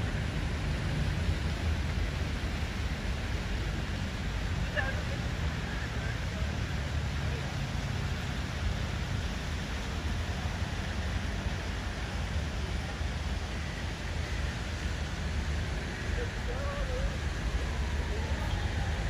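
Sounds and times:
constant low rumble: 0:00.0 - 0:19.0
fountain jets splashing into basin: 0:00.0 - 0:19.0.

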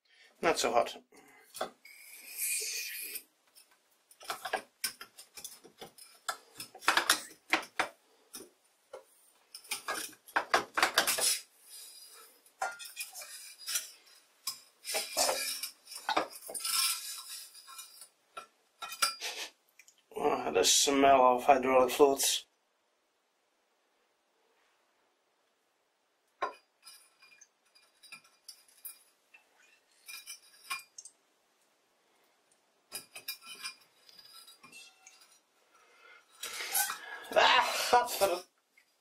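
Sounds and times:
metal clinks and knocks: 0:32.9 - 0:35.5
metal scraping: 0:33.0 - 0:35.5.

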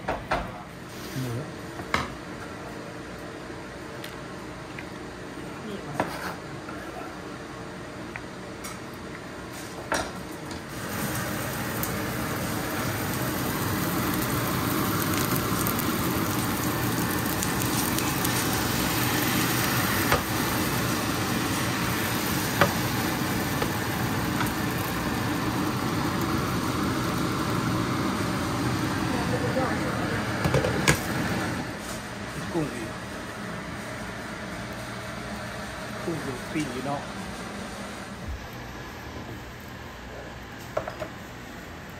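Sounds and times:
oil sizzling in frying pan: 0:10.6 - 0:32.0.

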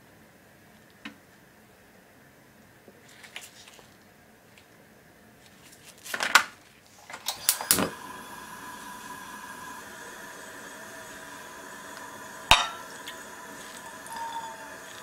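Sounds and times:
gas burner humming: 0:07.0 - 0:15.0
gas burner igniter clicks: 0:07.1 - 0:15.0.

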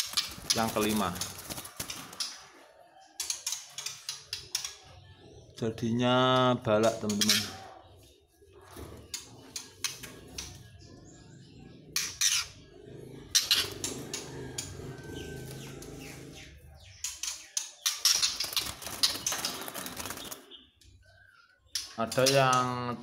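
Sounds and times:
birds wings flapping in cage: 0:00.0 - 0:02.6, 0:17.1 - 0:20.5.

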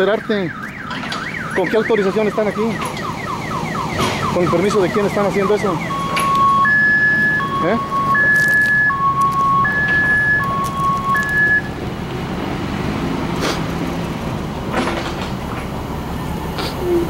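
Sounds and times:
two-tone warning alarm beeps: 0:00.0 - 0:11.7
truck engine running: 0:00.0 - 0:17.0.

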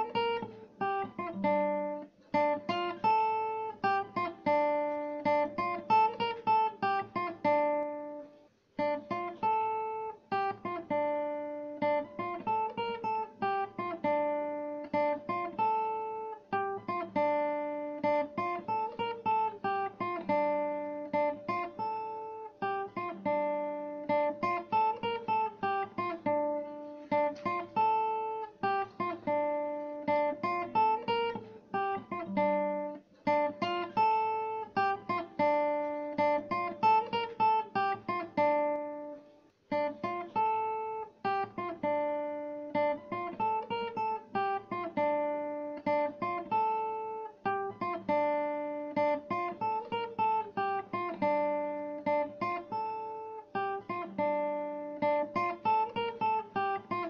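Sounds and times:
acoustic guitar plucked notes: 0:00.0 - 0:57.0.

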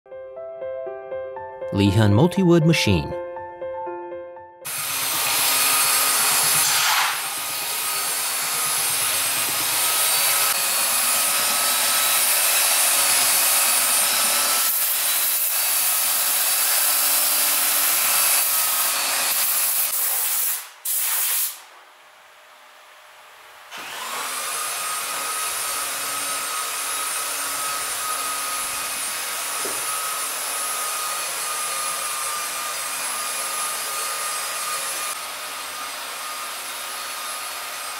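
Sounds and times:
woodworking machine motor whine: 0:04.7 - 0:19.4, 0:22.8 - 0:37.9
belt sander on wood: 0:04.7 - 0:20.6, 0:23.7 - 0:37.9.

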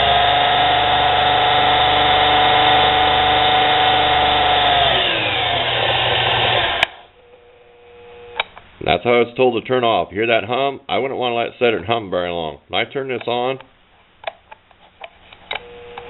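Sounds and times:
lathe motor whining: 0:00.0 - 0:07.1
faint electrical hum: 0:06.4 - 0:16.0.

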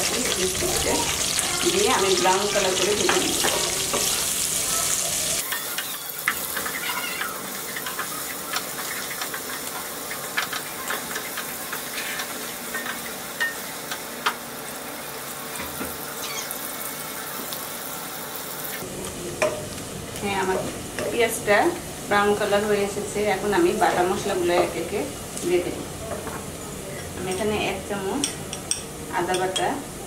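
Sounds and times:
onions sizzling in oil: 0:00.0 - 0:30.0.

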